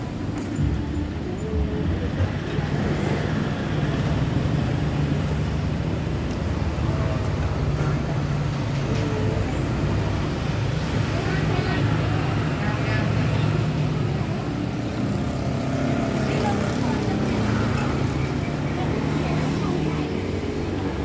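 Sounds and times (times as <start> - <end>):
faint voices: 0.0 - 21.0
street traffic noise: 0.0 - 21.0.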